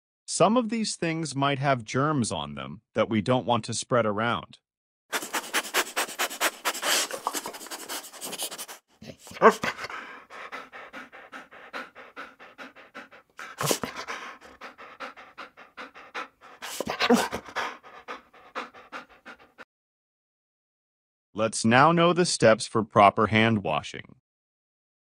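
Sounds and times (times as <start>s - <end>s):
dog panting: 5.1s - 19.7s
dog crying: 5.2s - 19.6s.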